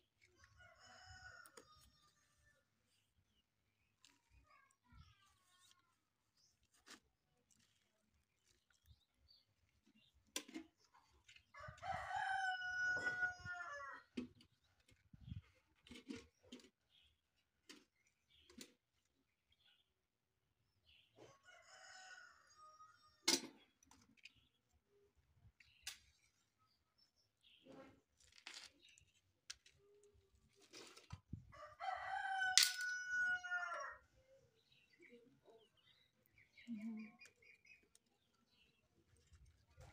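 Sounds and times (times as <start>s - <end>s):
rooster crowing: 11.7s - 14.0s, 31.6s - 34.0s.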